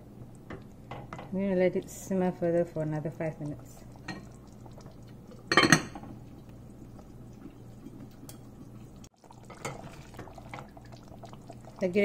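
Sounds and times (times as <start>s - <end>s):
glass lid clinking on dish: 5.5s - 6.0s.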